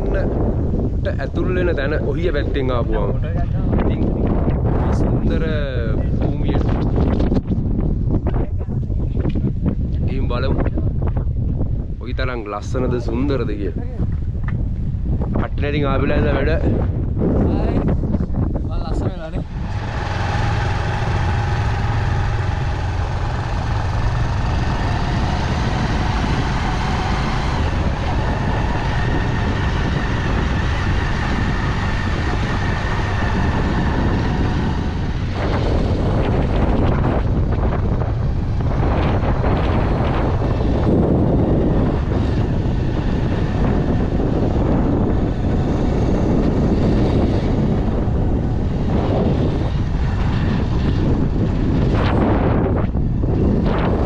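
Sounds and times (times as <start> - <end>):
wind gusting over microphone: 0.0 - 54.0
vehicle engine running: 19.2 - 54.0.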